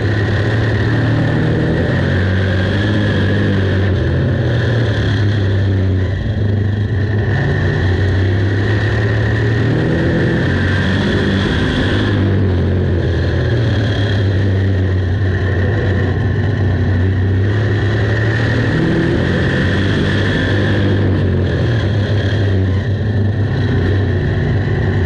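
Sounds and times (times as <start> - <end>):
race car engine running hard: 0.0 - 25.0.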